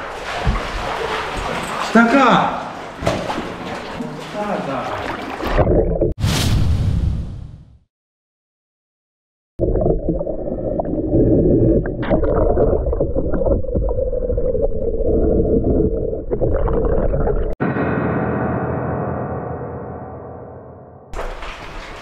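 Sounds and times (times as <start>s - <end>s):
knocks underwater: 0.0s - 1.9s, 2.8s - 5.6s.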